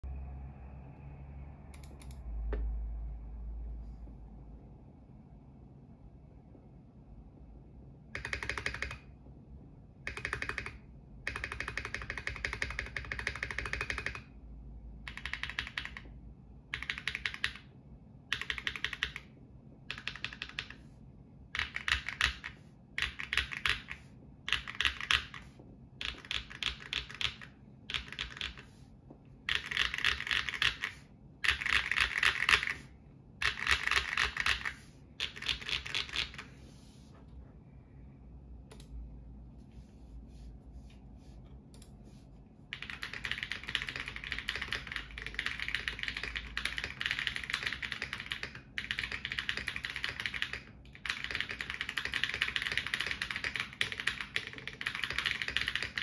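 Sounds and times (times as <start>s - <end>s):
mechanical keyboard typing: 1.7s - 2.6s, 8.0s - 9.2s, 9.9s - 14.4s, 15.0s - 28.8s, 29.4s - 36.6s, 42.7s - 56.0s.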